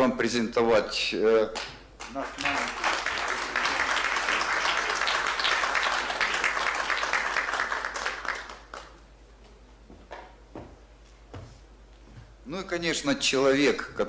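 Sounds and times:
audience applauding: 2.0 - 9.0.

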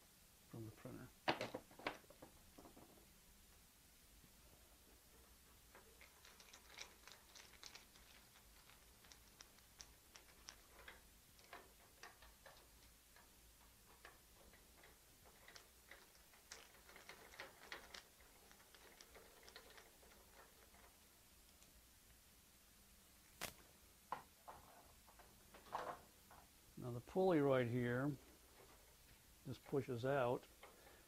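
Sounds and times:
small plastic and metal parts clicking: 5.1 - 21.8.

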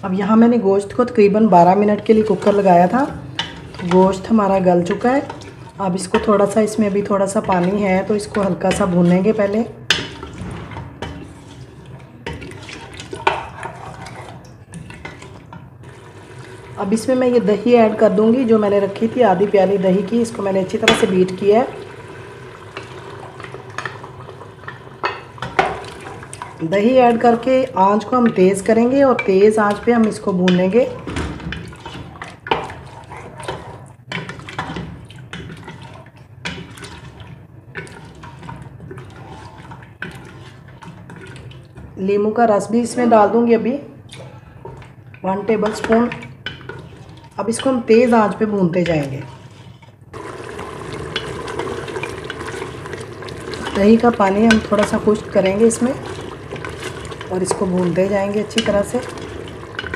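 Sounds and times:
gravy sloshing and squelching: 1.7 - 27.5, 29.6 - 42.0, 44.0 - 47.5, 49.0 - 59.9
wooden spoon scraping metal pot: 1.8 - 9.6, 10.2 - 16.0, 31.6 - 41.9, 44.7 - 59.9
spoon scraping and knocking pot: 53.4 - 59.9.

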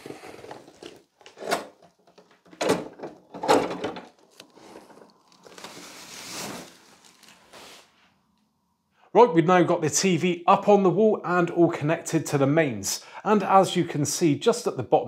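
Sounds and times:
packaging scraping against wall: 0.0 - 2.0, 4.1 - 7.9.

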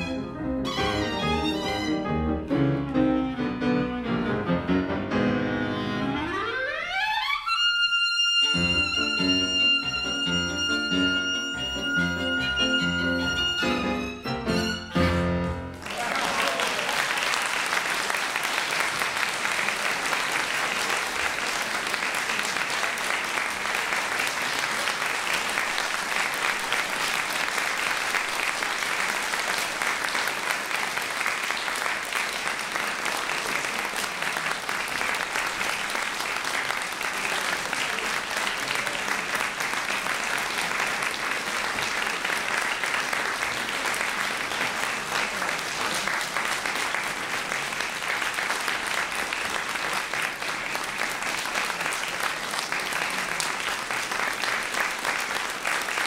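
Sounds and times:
audience applauding: 14.6 - 56.0.

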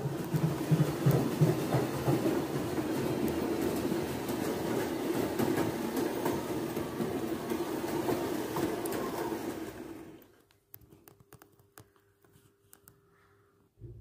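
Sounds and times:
wheels rumbling on rail: 0.0 - 10.2
model locomotive motor humming: 0.0 - 10.3.

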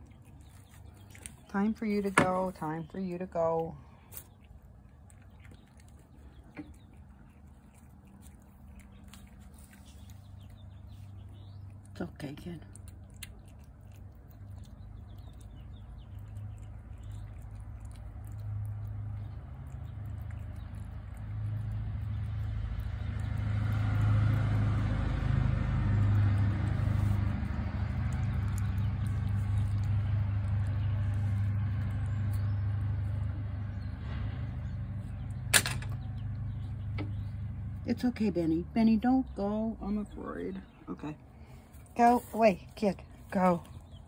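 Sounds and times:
vehicle engine humming: 0.0 - 44.0.

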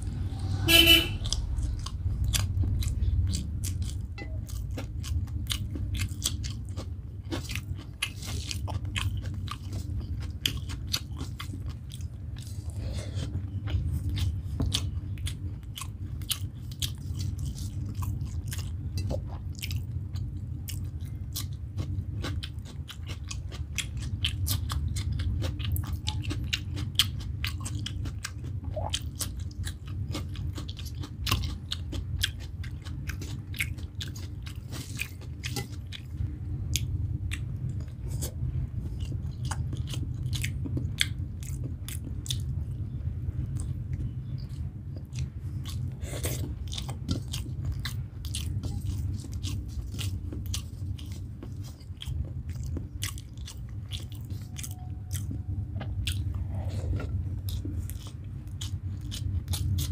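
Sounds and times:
steady low hum: 0.0 - 59.9
wet chewing and mouth smacks: 13.3 - 59.9.

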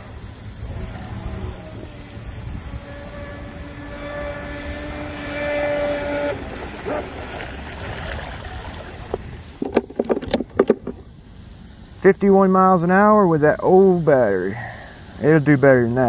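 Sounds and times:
boat motor whining: 0.0 - 11.1
low hiss: 0.0 - 16.0.

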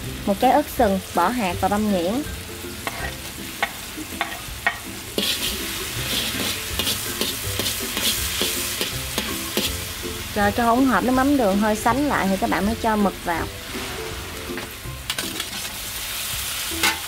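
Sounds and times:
crackly sizzling: 0.0 - 17.0
sauce bubbling in a wok: 2.2 - 10.4.

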